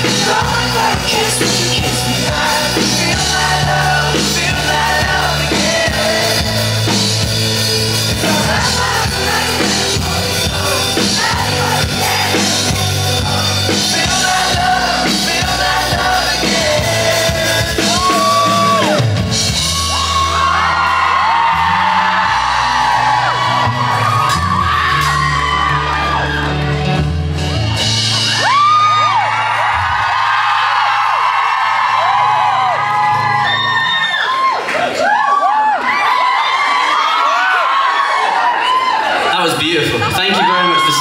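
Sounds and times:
lead vocal singing: 0.0s - 24.2s
live pop-rock band playing: 0.0s - 35.0s, 39.1s - 41.0s
audience singing along and whooping: 0.0s - 41.0s.

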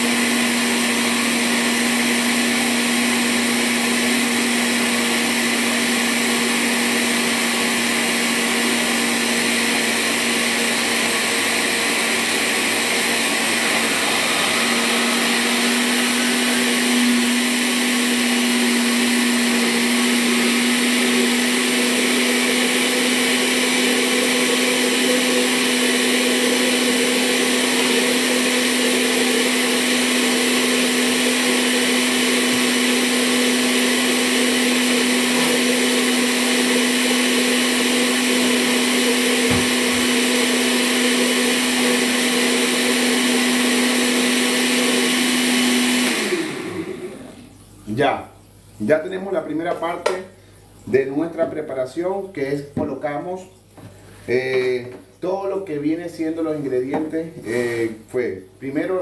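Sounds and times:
blender motor hum and whir: 0.0s - 47.5s.

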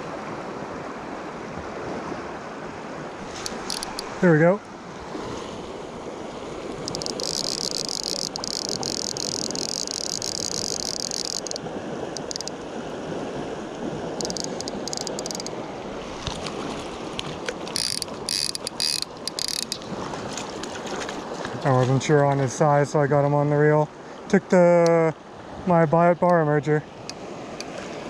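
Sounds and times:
river rushing: 0.0s - 22.9s
fly reel clicking: 3.3s - 4.2s, 6.8s - 11.6s, 12.2s - 12.6s, 14.2s - 15.7s, 17.5s - 19.9s.

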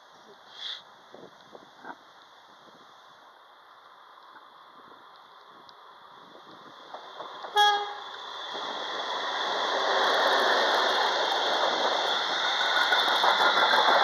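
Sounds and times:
train engine and wheels on rails: 0.0s - 14.0s
locomotive horn blast: 7.5s - 8.1s.

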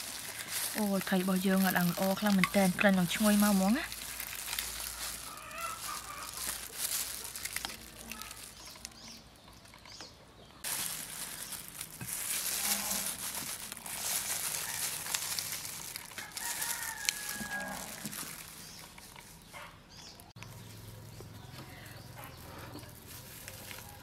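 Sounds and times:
lettuce leaves rustling: 0.0s - 10.0s, 10.6s - 24.0s
plastic gloves crinkling: 0.0s - 24.0s
faint chicken clucks: 4.8s - 7.3s.

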